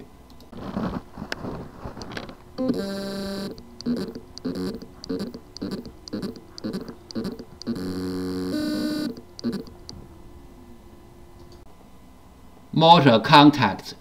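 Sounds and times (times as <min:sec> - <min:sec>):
faint falling whine: 0:00.0 - 0:13.3
hard drive rhythmic pulsing: 0:01.4 - 0:12.4
short steady tones: 0:02.6 - 0:11.6.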